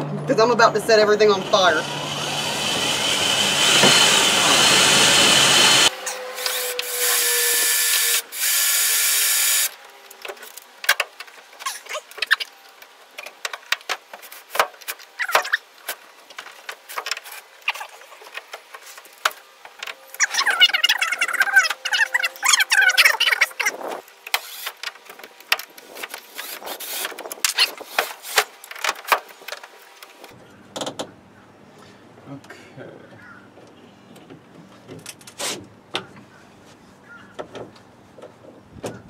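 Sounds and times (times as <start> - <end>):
electric drill drilling metal: 1.3 - 9.8, 24.3 - 24.8.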